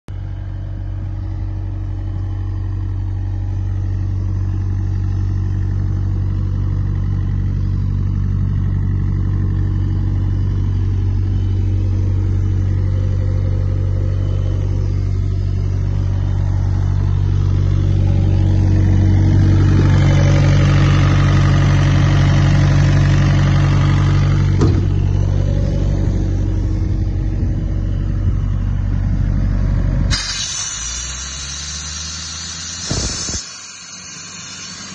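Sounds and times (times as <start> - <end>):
air compressor engine hum: 0.2 - 34.9
compressor hiss: 30.1 - 34.9.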